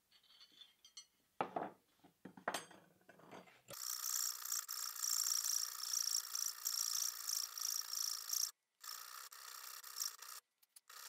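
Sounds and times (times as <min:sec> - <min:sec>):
metal tools clinking: 0:00.1 - 0:01.1.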